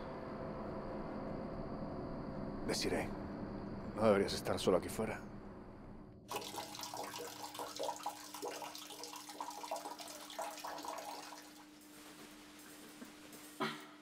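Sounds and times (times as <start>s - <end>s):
man urinating into toilet water: 6.3s - 12.0s.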